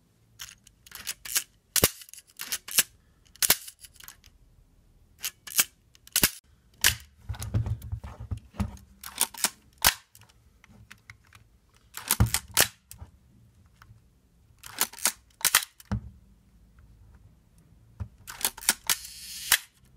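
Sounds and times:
film-advance lever winding: 0.4 - 4.3, 5.2 - 6.4, 14.6 - 15.9, 18.3 - 19.8
camera shutter clicks: 18.3 - 19.8.

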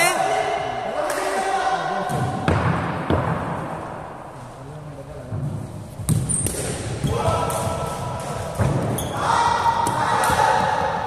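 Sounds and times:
players shouting: 9.0 - 11.0.

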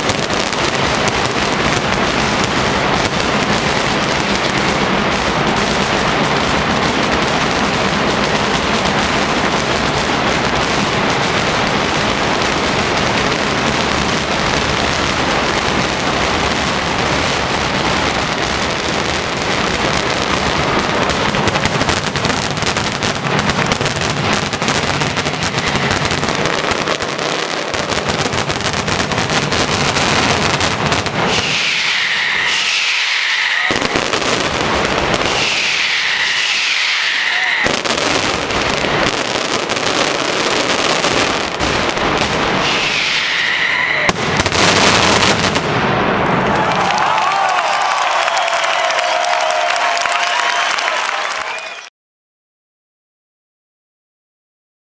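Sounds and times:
firecrackers rapid-fire roll: 0.0 - 51.9
high falling tones: 30.4 - 46.0.

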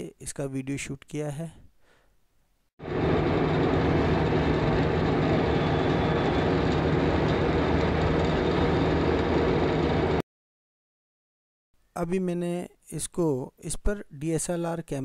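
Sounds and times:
low hum: 2.8 - 10.2
road traffic rumble: 2.8 - 10.2.

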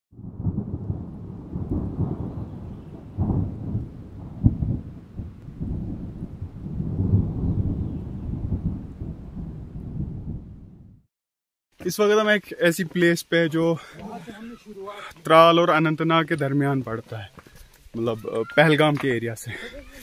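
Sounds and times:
rolling thunder: 0.1 - 11.1
thunder clap: 0.1 - 11.1.

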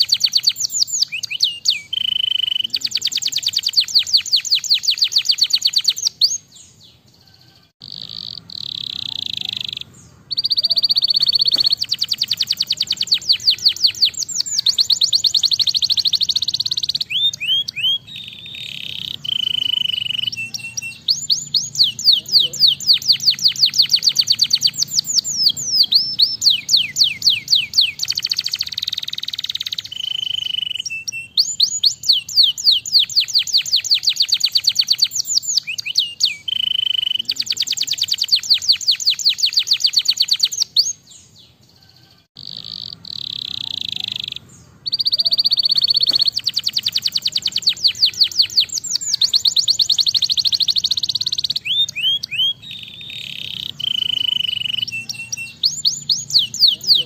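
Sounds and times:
canary singing trills: 0.0 - 57.0.

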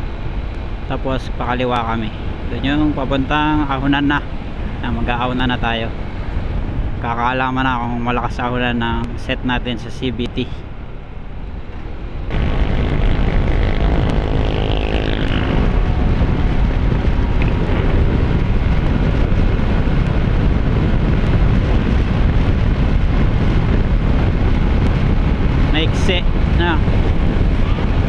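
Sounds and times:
wind on microphone: 0.0 - 28.0
scooter engine: 12.3 - 20.9.

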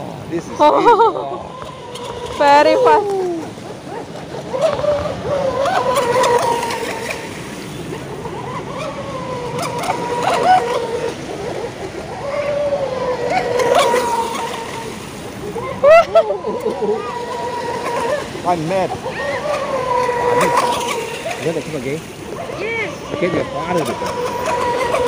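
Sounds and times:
model boat motor whining: 0.0 - 25.0
water spray splashing: 17.1 - 25.0.

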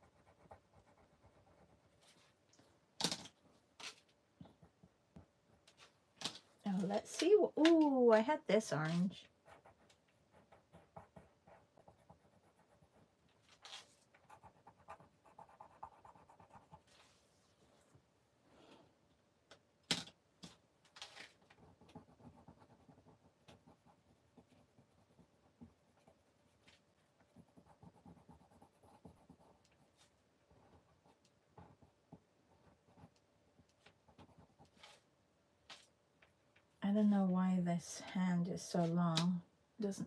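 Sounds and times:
paintbrush scratching paper: 8.8 - 17.5, 21.1 - 33.2.

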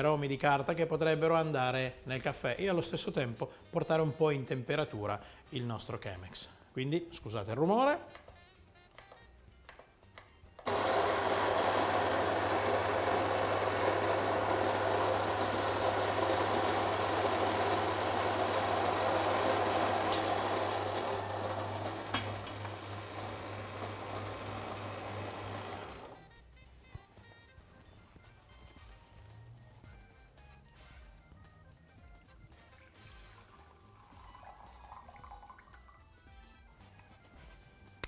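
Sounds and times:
electric coffee grinder grinding beans: 10.6 - 26.4.

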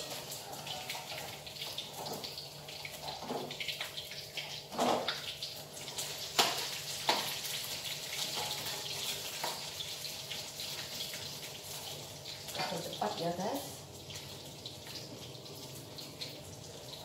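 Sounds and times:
tap water running into sink: 0.0 - 9.9.

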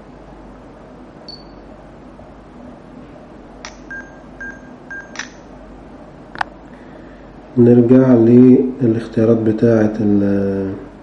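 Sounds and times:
short electronic beeps: 1.3 - 1.6, 3.7 - 5.4.

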